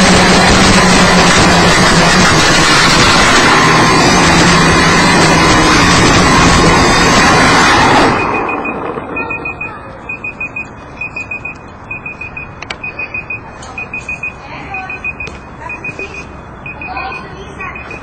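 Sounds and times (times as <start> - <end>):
drone motor and propeller noise: 0.0 - 13.3
quick high electronic beeps: 8.1 - 18.0.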